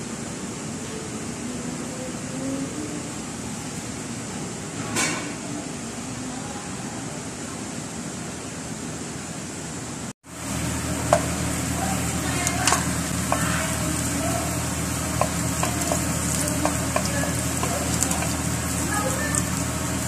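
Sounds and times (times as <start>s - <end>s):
steady hum: 0.0s - 20.0s
garlic sizzling in hot oil: 10.3s - 20.0s
spatula knocking on metal pot: 15.1s - 18.4s.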